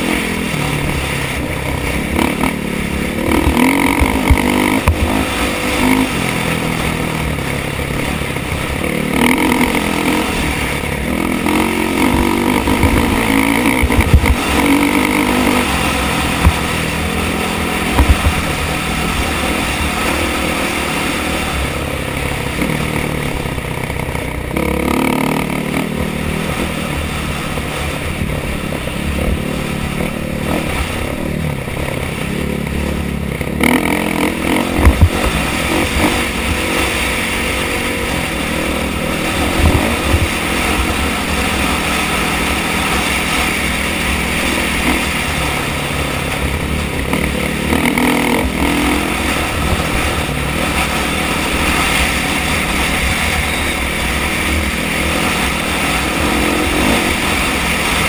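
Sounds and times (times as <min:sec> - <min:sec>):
motorcycle engine revving: 0:00.0 - 0:58.0
sharp knocks and clatter: 0:16.2 - 0:16.9, 0:17.8 - 0:18.6, 0:34.6 - 0:36.3.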